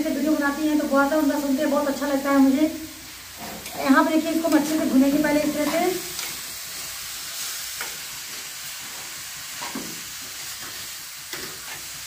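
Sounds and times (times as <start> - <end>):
carrots sizzling in a pan: 0.0 - 12.0
spoon scraping a pan: 3.3 - 4.8, 7.8 - 12.0.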